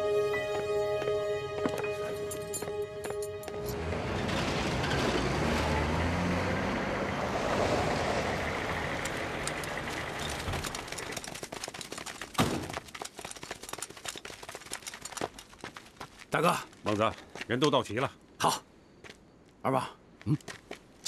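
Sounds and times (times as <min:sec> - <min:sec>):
running footsteps: 0:00.0 - 0:03.6, 0:09.5 - 0:17.8, 0:20.2 - 0:21.0
truck engine running: 0:03.4 - 0:11.6.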